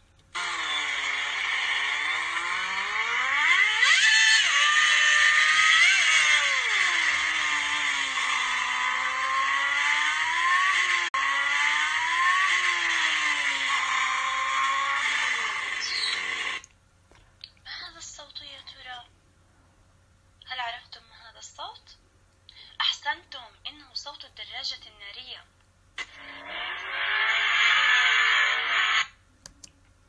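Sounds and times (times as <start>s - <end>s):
motorcycle engine revving: 0.4s - 16.6s.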